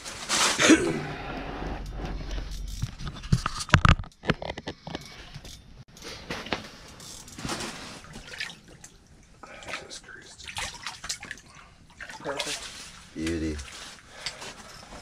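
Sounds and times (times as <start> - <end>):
knocks and scrapes: 0.0 - 8.0.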